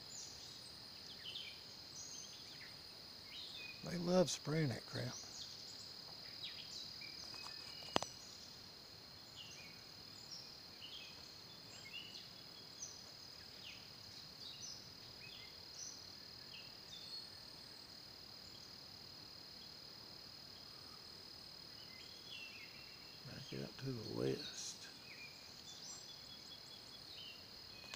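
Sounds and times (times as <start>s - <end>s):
insect chorus: 0.0s - 27.9s
short bird chirps: 7.1s - 8.2s.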